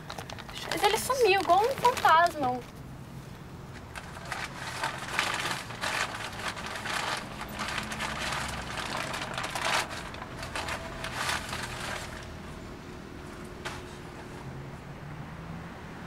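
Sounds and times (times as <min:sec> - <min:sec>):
paper wrapping crinkling: 0:00.0 - 0:02.6, 0:03.8 - 0:12.6.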